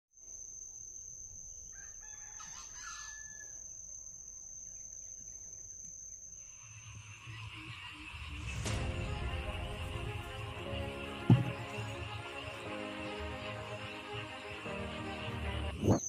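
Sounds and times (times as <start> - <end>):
rooster crowing: 1.7 - 3.6
high-pitched whine: 6.4 - 16.0.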